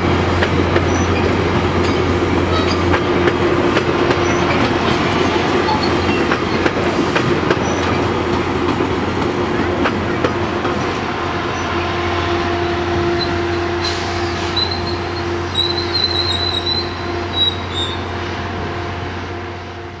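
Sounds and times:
train coaches rumbling past: 0.0 - 20.0
high-pitched wheel squealing: 13.0 - 18.0.

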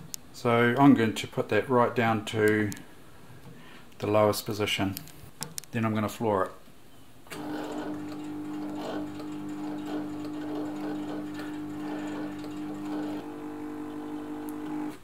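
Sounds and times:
sewing machine motor humming: 7.3 - 15.0.

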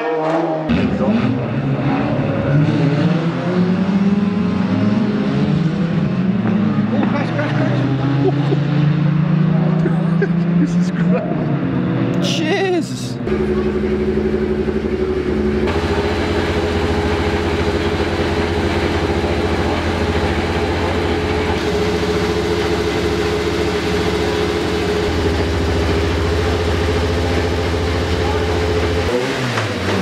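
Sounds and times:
turbocharged car engine idling: 12.2 - 30.0.

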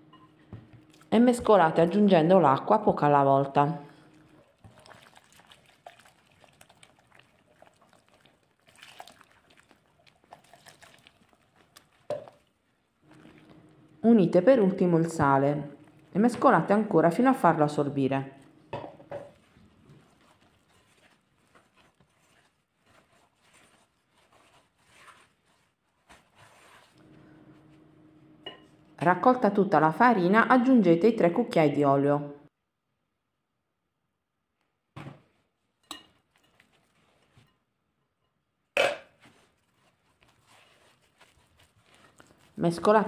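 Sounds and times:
hand mixing dough in bowl: 0.8 - 30.6, 35.9 - 37.6, 39.2 - 43.0.

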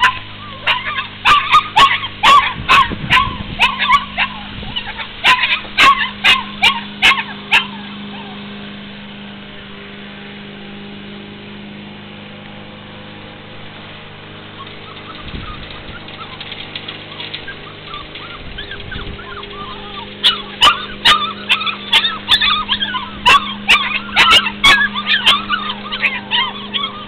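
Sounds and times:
puppies yipping and barking: 0.0 - 8.6, 14.4 - 27.0
steady low hum: 0.0 - 27.0.

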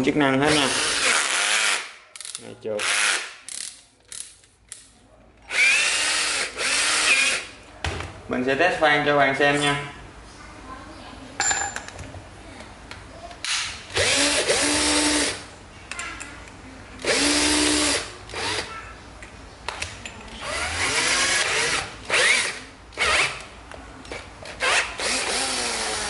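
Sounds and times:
cordless drill whining: 24.7 - 26.0.

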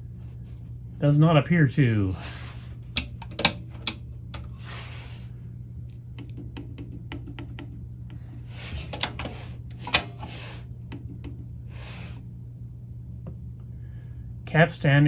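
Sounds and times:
steady low hum: 0.0 - 15.0
cassette deck keys clicking: 3.0 - 4.5.

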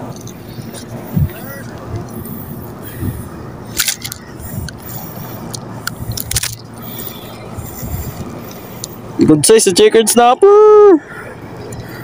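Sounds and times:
steady low rumble: 0.0 - 10.2
fishing reel scrapes and clicks: 3.7 - 7.2.

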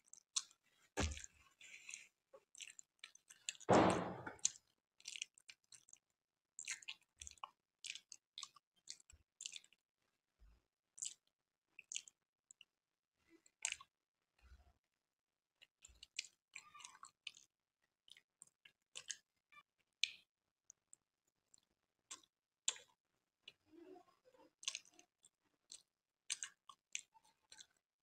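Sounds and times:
person chewing: 0.4 - 3.6, 6.6 - 9.8, 11.0 - 11.2, 11.9 - 12.2, 19.0 - 19.2, 21.5 - 22.9, 24.6 - 25.0, 25.7 - 27.8.

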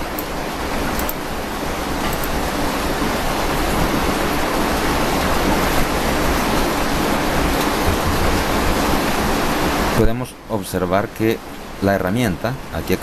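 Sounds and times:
steady rushing hiss: 0.0 - 10.2.

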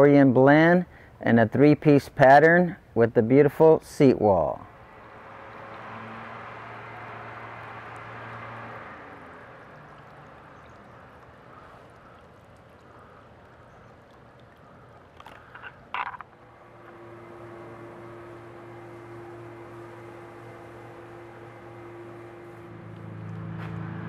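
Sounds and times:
fountain water bubbling and trickling: 4.8 - 17.4.

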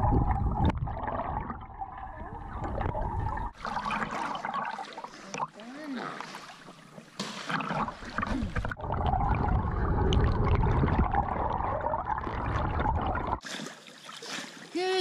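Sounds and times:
muffled underwater churning: 0.0 - 14.7.

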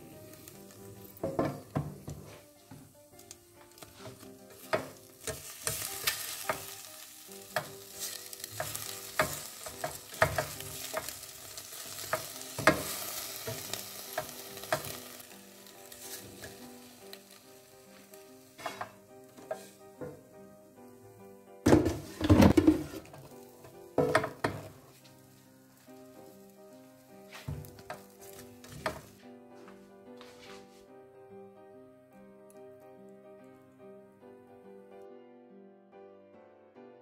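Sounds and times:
food sizzling: 0.0 - 29.2
spatula knocking and scraping basket: 1.2 - 2.9, 3.7 - 6.8, 7.5 - 11.2, 12.1 - 15.0, 18.6 - 20.3, 21.7 - 24.8, 27.3 - 29.2.

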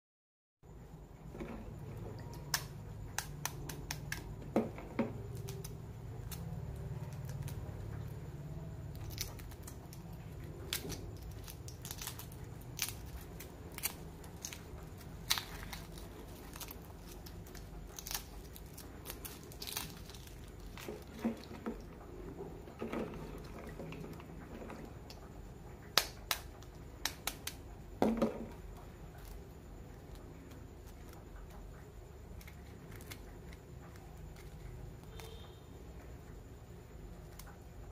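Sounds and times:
eggshells cracking: 8.9 - 25.2, 25.9 - 28.6.

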